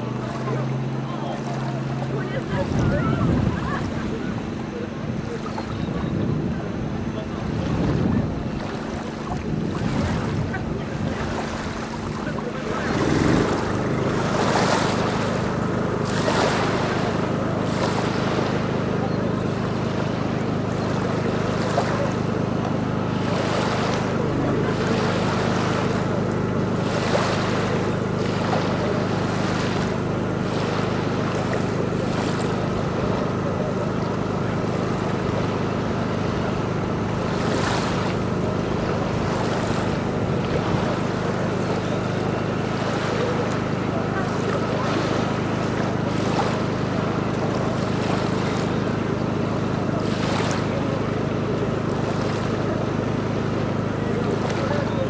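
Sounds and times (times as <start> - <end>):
engine droning: 0.0 - 55.0
wind buffeting microphone: 2.3 - 18.7.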